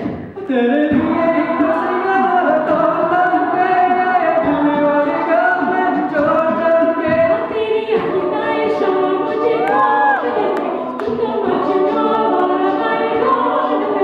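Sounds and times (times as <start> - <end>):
a cappella group singing: 0.0 - 14.0.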